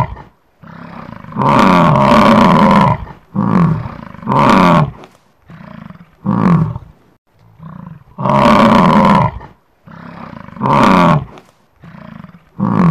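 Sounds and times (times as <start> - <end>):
bison bellowing: 7.6 - 12.9.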